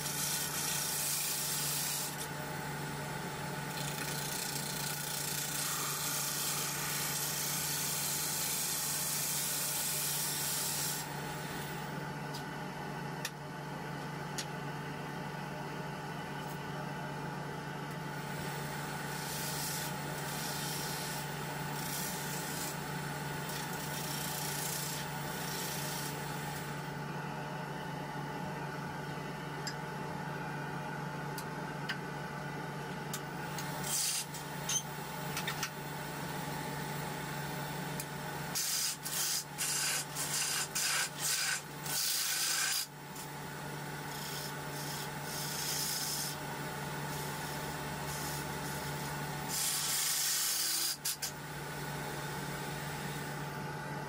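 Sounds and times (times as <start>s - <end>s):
turning tool scraping wood: 38.6s - 42.9s, 44.1s - 46.4s.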